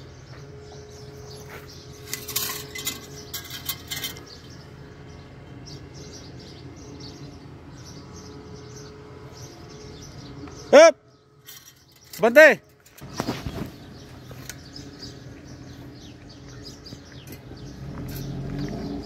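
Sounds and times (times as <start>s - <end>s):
metallic clinking and jingling: 2.0s - 4.4s.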